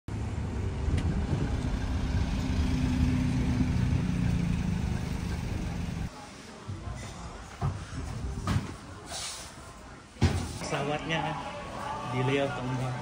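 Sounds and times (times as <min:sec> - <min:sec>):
vehicle engine running: 0:00.1 - 0:06.1.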